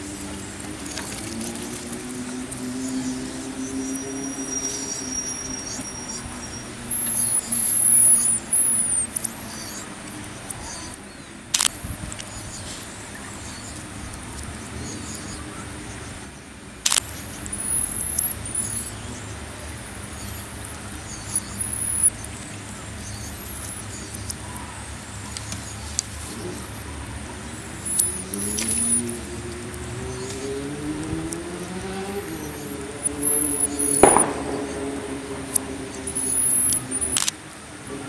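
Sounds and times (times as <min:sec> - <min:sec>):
vehicle engine revving: 0:00.0 - 0:08.8, 0:26.1 - 0:38.0
low traffic rumble: 0:00.0 - 0:38.0
marmosets chirping: 0:02.8 - 0:11.4, 0:17.0 - 0:30.7, 0:31.5 - 0:37.3
sharp clicks: 0:11.5 - 0:12.4, 0:16.8 - 0:18.9, 0:27.8 - 0:30.4, 0:32.8 - 0:37.4.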